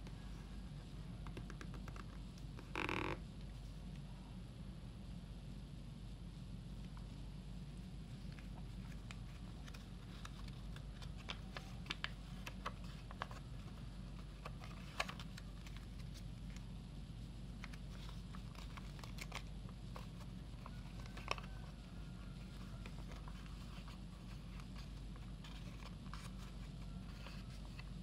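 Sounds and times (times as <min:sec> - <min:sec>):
paper crinkling and folding: 0:08.1 - 0:16.8, 0:17.5 - 0:28.0.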